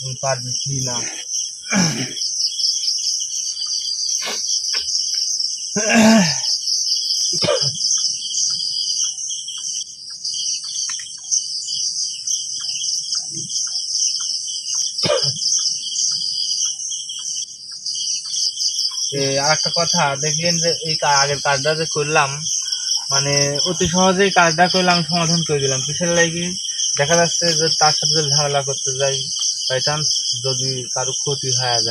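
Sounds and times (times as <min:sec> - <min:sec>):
crickets chirping: 0:00.0 - 0:31.9
short human voice sounds: 0:05.8 - 0:06.5.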